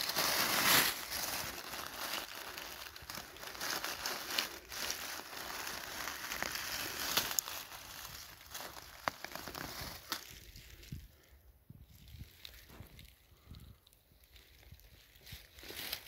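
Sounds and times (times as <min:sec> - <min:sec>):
dry leaves crackling and rustling: 0:00.0 - 0:10.9, 0:14.2 - 0:16.0.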